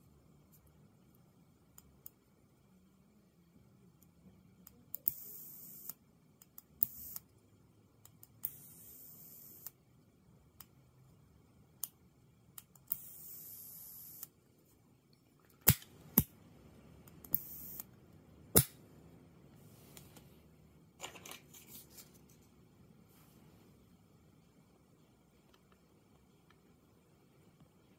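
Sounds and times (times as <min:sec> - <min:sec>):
plasma lighter electric hiss: 0:17.3 - 0:17.9.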